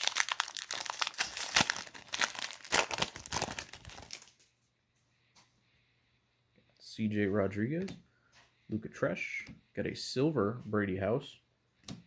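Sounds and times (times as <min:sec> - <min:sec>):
wrapper tearing and crinkling: 0:00.0 - 0:04.5.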